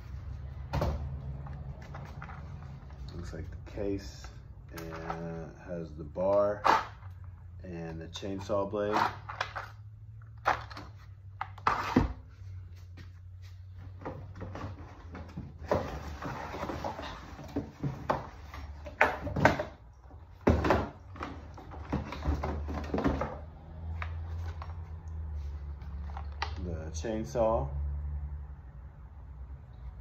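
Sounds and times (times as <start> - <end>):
cardboard rustling and scraping: 10.5 - 19.7
hard plastic parts knocking: 20.4 - 23.5.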